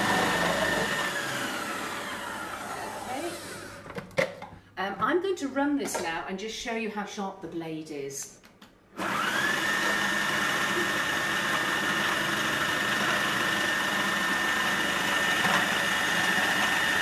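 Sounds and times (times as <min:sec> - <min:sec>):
food processor motor whining: 0:00.0 - 0:03.9, 0:09.0 - 0:17.0.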